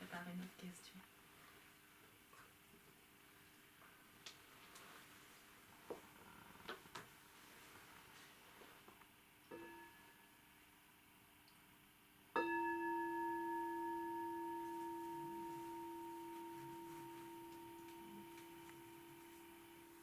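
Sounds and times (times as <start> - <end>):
bell ringing: 12.4 - 20.0.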